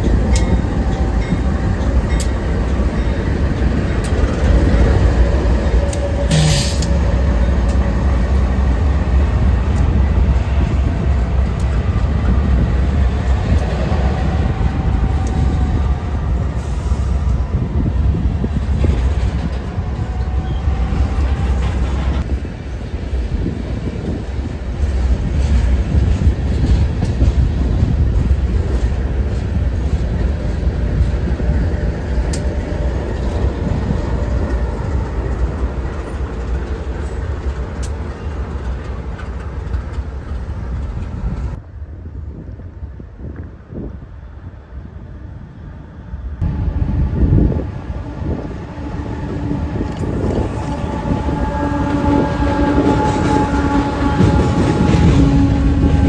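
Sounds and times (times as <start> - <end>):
train wheels clicking over rail joints: 0.0 - 17.6, 23.4 - 41.6
diesel locomotives rumbling: 0.0 - 56.0.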